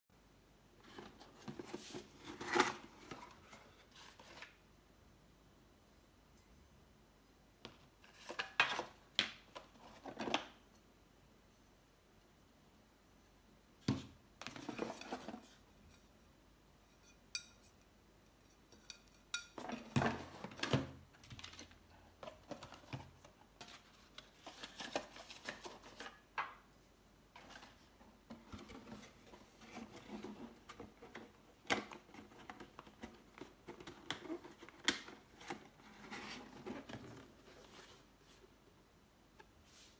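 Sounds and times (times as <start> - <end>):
cardboard rustling and scraping: 0.8 - 4.6, 13.9 - 15.7, 19.6 - 26.3, 27.3 - 38.5.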